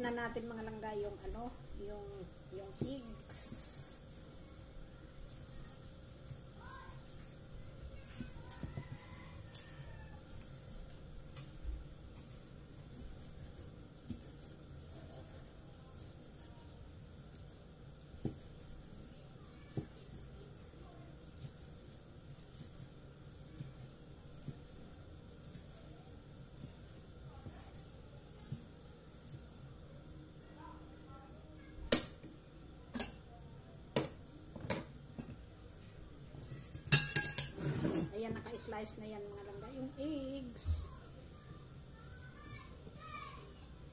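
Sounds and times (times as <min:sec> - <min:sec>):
knife chopping on wooden board: 0:18.2 - 0:18.6.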